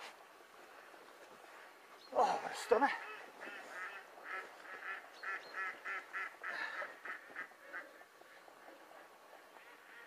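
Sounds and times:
ducks calling: 0:02.0 - 0:10.0.

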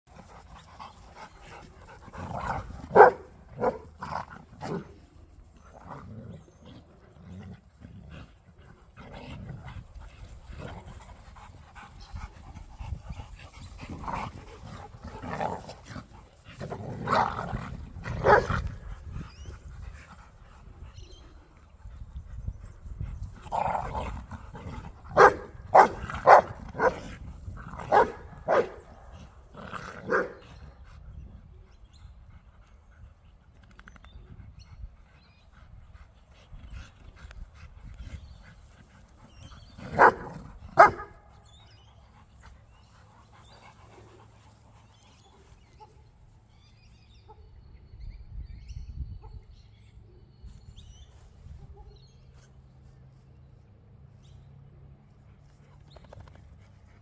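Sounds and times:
dogs barking: 0:02.4 - 0:03.9, 0:18.2 - 0:18.8, 0:25.1 - 0:27.0, 0:27.8 - 0:28.9, 0:30.0 - 0:30.4, 0:39.8 - 0:41.2.

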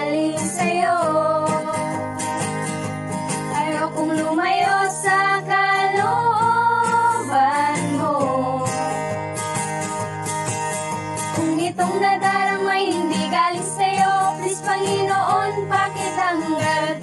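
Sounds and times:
women singing together: 0:00.0 - 0:02.0, 0:03.6 - 0:08.9, 0:11.4 - 0:17.0
strummed acoustic guitar: 0:00.0 - 0:17.0.

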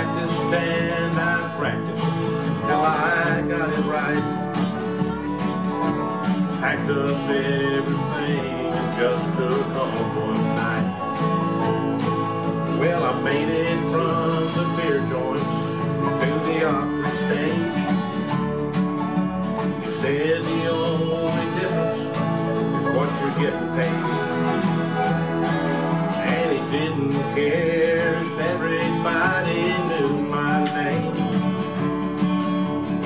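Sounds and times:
acoustic guitar strumming: 0:00.0 - 0:33.0
man singing: 0:00.0 - 0:33.0.

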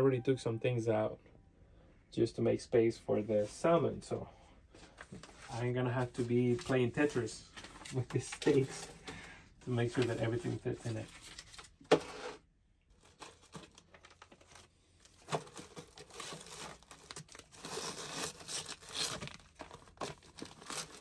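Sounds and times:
plastic bags crinkling: 0:12.9 - 0:21.0.

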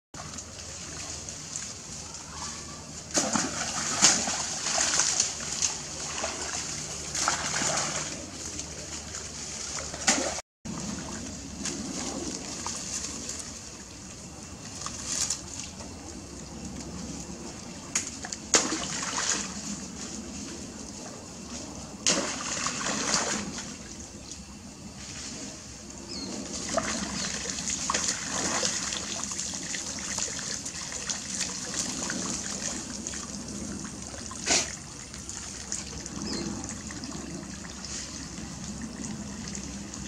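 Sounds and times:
monkeys splashing in water: 0:00.2 - 0:13.6, 0:26.5 - 0:33.3.

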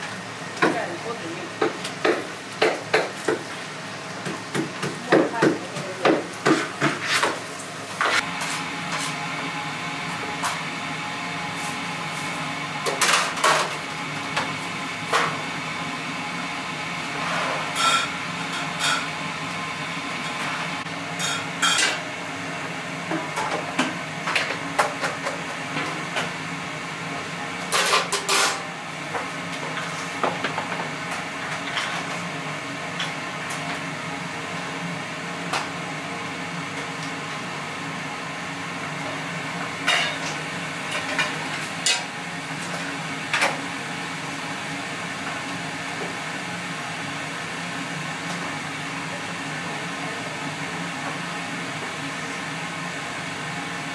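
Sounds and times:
steady background hum: 0:00.0 - 0:53.9
metal utensils clanking on pans: 0:27.8 - 0:28.6.

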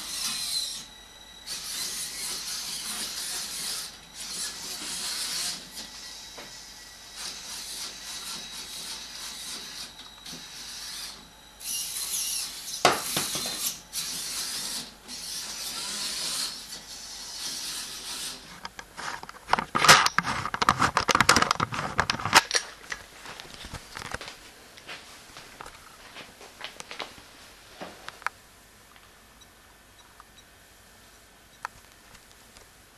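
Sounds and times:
robot motors whirring: 0:00.0 - 0:18.6.

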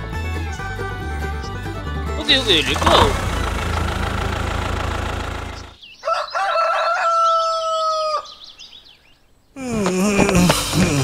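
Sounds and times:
music: 0:00.0 - 0:02.8
small birds chirping: 0:02.2 - 0:10.0
rooster crowing: 0:06.0 - 0:08.4.

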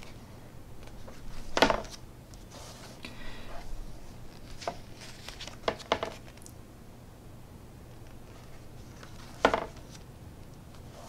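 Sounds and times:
paper rustling: 0:00.0 - 0:03.0, 0:03.6 - 0:06.5, 0:08.0 - 0:10.1
book page turning: 0:04.3 - 0:06.5.

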